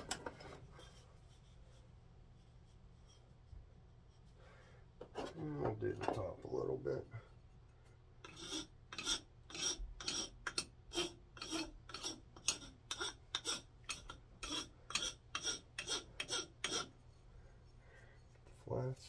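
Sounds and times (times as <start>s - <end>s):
wood rasp filing wooden handle: 8.2s - 17.1s.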